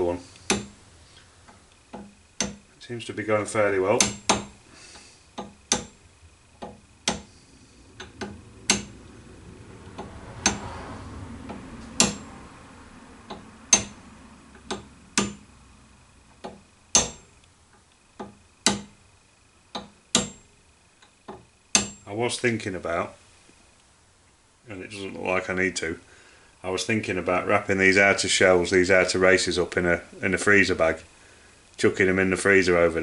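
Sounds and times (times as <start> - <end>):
hammer tapping metal: 0.5 - 0.8, 1.9 - 2.7, 4.0 - 4.6, 5.4 - 6.0, 6.6 - 7.3, 8.0 - 9.0, 11.5 - 12.3, 13.3 - 14.0, 14.6 - 15.4, 16.4 - 17.3, 18.2 - 19.0, 19.7 - 20.5, 21.7 - 22.0.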